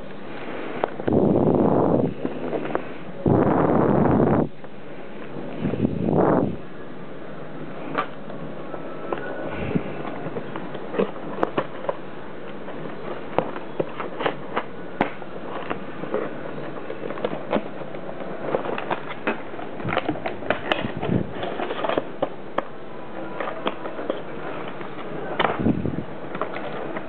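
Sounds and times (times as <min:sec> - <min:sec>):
cardboard box rustling: 0:07.9 - 0:27.0.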